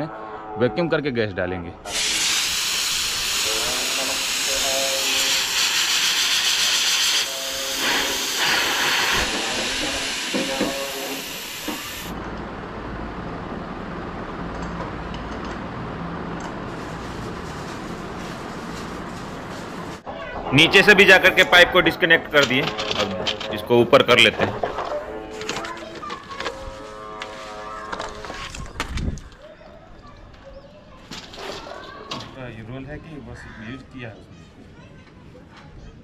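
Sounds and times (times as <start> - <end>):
pressure hissing from pipe: 1.9 - 12.2.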